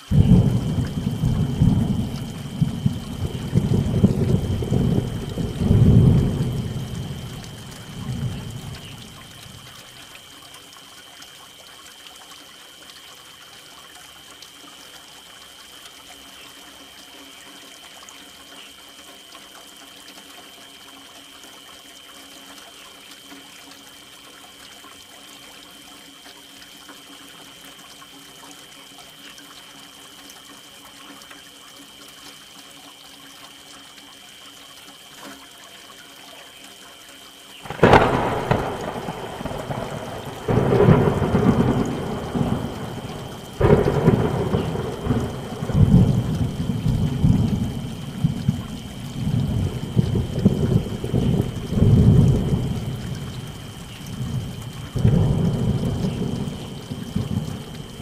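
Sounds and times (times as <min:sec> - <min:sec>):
steady rain: 0:00.0 - 0:58.0
loud thunderclap: 0:00.1 - 0:09.0, 0:37.7 - 0:53.6
rolling thunder: 0:00.1 - 0:09.7, 0:37.7 - 0:58.0.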